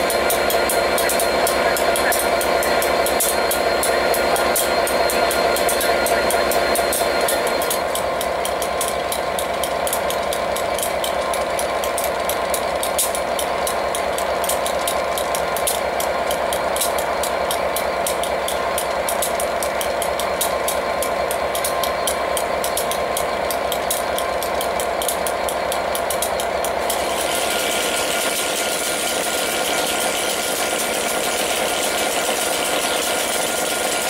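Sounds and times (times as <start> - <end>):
diesel locomotive engine idling: 0.0 - 34.0.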